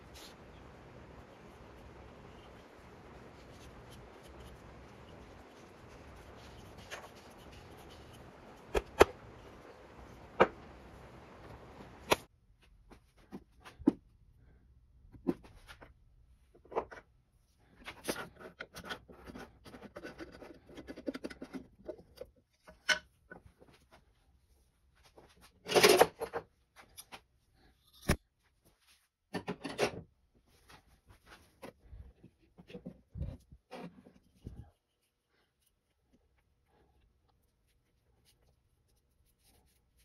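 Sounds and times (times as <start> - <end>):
faint steady hiss: 0.0 - 12.3.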